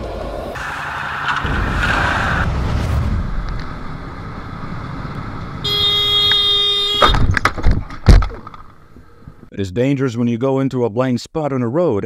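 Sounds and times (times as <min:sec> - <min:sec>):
vehicle road and engine rumble: 0:00.0 - 0:09.5
car horn honking: 0:05.6 - 0:07.4.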